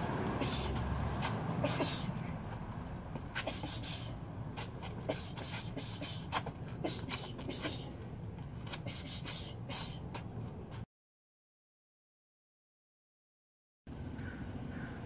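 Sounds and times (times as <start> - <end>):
boots scuffing on concrete: 0.6 - 10.8
sharp hissing exhales: 3.4 - 4.2.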